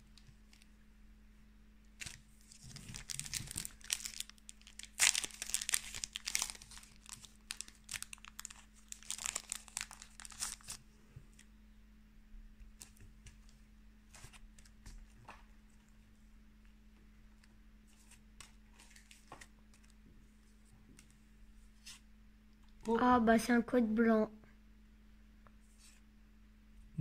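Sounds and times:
foil wrapper crinkling and tearing: 0:02.0 - 0:10.8.

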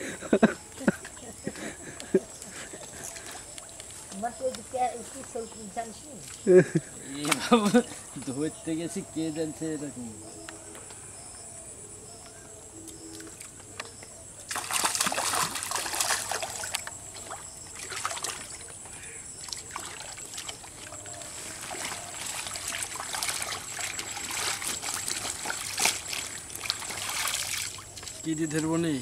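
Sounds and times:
fish splashing in water: 0:14.5 - 0:28.3.

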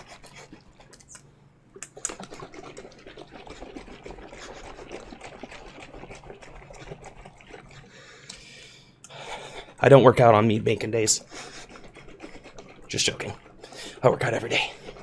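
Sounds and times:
liquid sloshing in a shaken jug: 0:01.9 - 0:08.1, 0:09.8 - 0:15.0.

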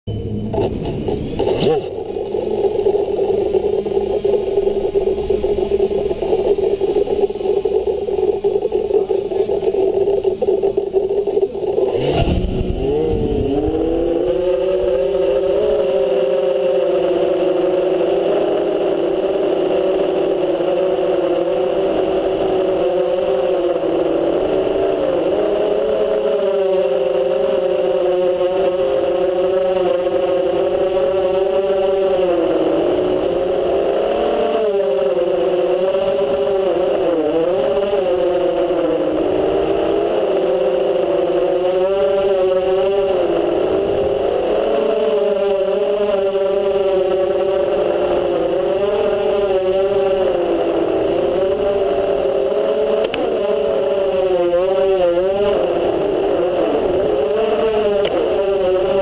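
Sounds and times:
drone motor whine: 0:00.1 - 0:59.0
sharp click: 0:00.4 - 0:02.0.

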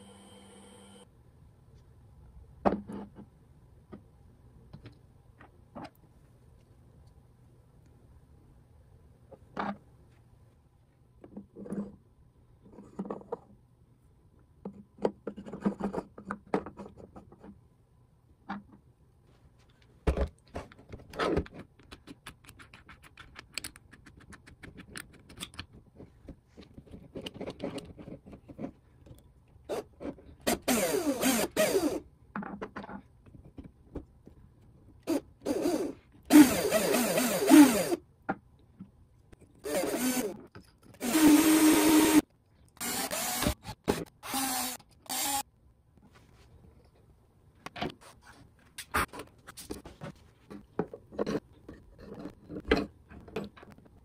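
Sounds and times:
cordless drill motor whine: 0:00.0 - 0:01.0, 0:35.5 - 0:38.0, 0:39.6 - 0:40.3, 0:41.0 - 0:42.2, 0:42.8 - 0:43.6, 0:44.2 - 0:45.4
plastic parts clicking and scraping: 0:19.8 - 0:30.4, 0:48.8 - 0:54.0.

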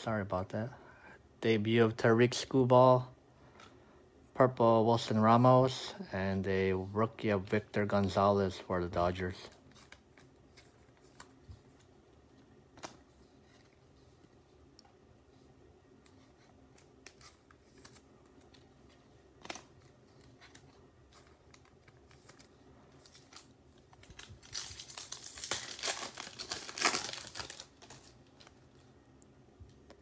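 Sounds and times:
foil wrapper crinkling and tearing: 0:19.4 - 0:28.6.

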